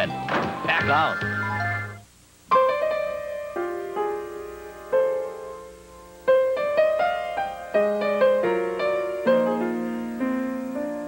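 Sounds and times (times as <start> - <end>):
slow solo piano melody: 2.5 - 11.0.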